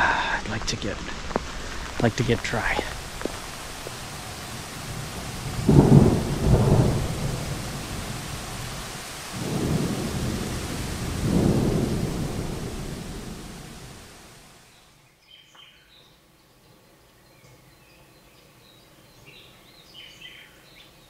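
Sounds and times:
thunder rolling: 0.0 - 14.4
steady rain: 0.0 - 15.0.

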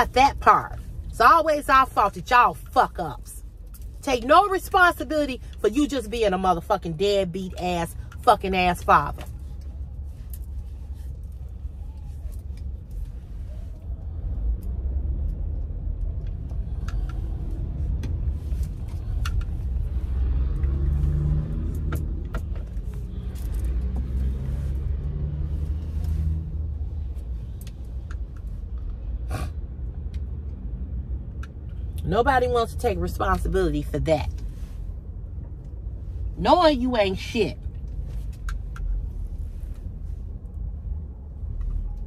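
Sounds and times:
engine and road rumble: 0.0 - 42.0.

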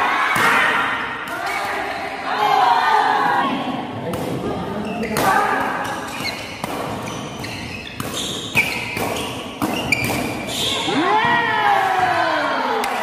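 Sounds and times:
rackets hitting shuttlecock: 4.1 - 11.4
shoes squeaking on court floor: 4.8 - 10.9.

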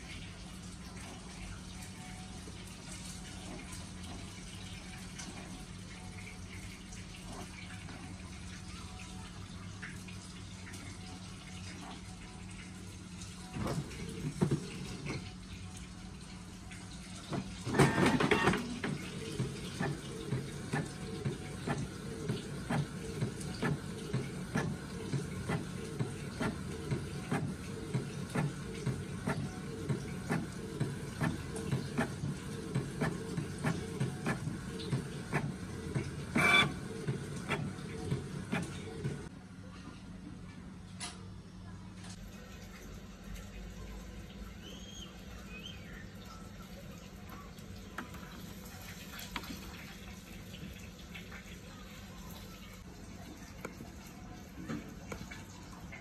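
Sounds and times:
printer paper feed whirr: 13.5 - 15.2, 17.3 - 39.3
printer motor hum: 17.3 - 39.3.

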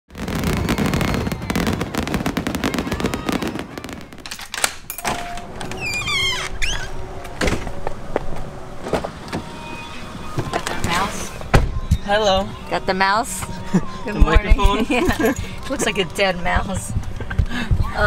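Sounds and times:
fireworks crackling and popping: 0.1 - 4.8.

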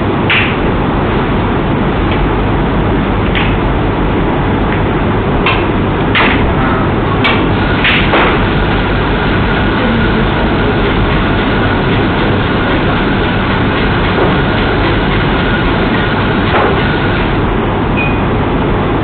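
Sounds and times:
room noise hiss and rumble: 0.0 - 19.0.

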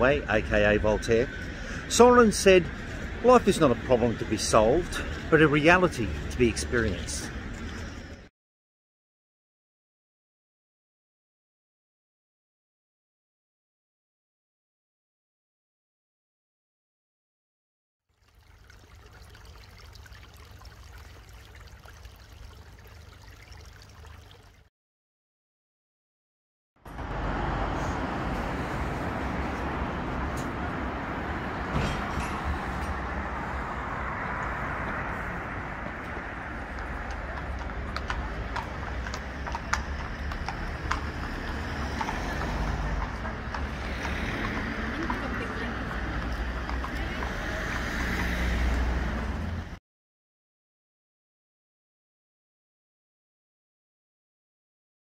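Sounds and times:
hooves clip-clopping on pavement: 0.2 - 8.3, 34.1 - 49.6
water trickling over stones: 4.4 - 8.3, 18.1 - 24.7.

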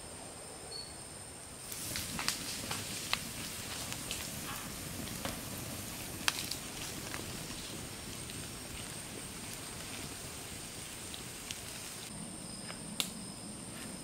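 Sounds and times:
wood fire crackling: 1.6 - 12.1.

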